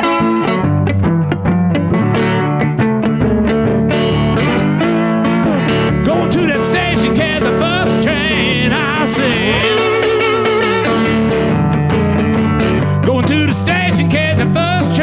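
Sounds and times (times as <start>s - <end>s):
resonator guitar playing: 0.0s - 15.0s
man singing blues: 4.8s - 11.1s, 12.4s - 15.0s.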